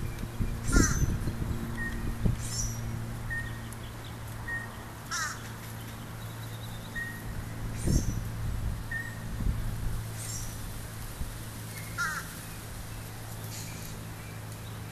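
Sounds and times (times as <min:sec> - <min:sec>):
cranes calling: 0:00.0 - 0:03.7, 0:04.4 - 0:06.0, 0:11.7 - 0:12.6.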